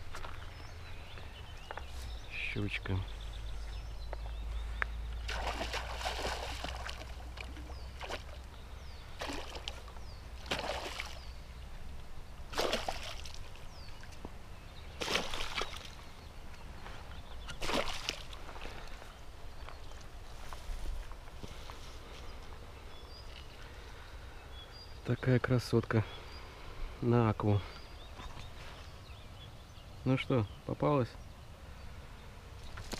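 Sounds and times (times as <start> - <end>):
water sloshing: 5.1 - 11.6, 12.5 - 14.3, 14.9 - 16.6, 17.4 - 20.1
fish thrashing and splashing: 5.3 - 8.5, 9.1 - 11.4, 12.5 - 14.1, 15.0 - 16.0, 17.5 - 19.0.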